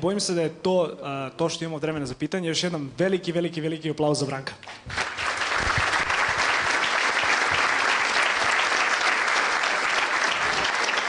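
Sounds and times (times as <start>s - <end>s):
large audience applauding: 4.7s - 11.0s.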